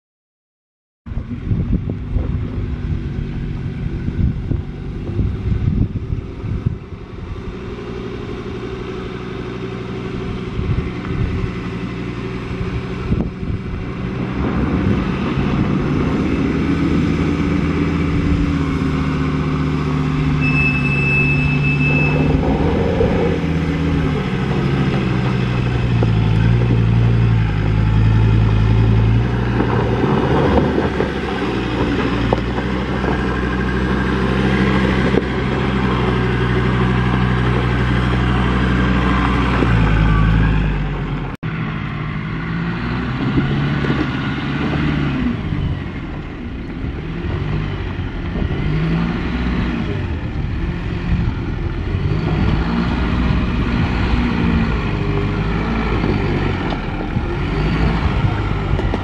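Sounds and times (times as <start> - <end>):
diesel engine under load: 1.1 - 59.0
truck diesel engine: 1.1 - 59.0.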